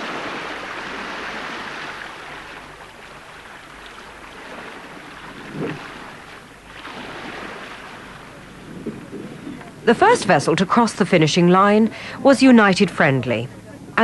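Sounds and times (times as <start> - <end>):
wind buffeting the microphone: 0.0 - 10.7
rushing water at ship's bow: 0.0 - 14.0.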